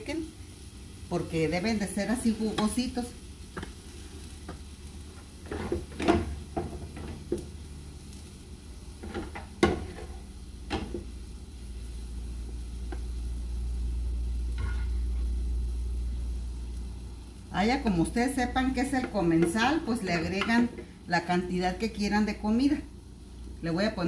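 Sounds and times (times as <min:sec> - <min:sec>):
spoon scraping and knocking pan: 0:03.5 - 0:07.5, 0:09.0 - 0:11.1, 0:14.6 - 0:15.2, 0:18.9 - 0:20.9.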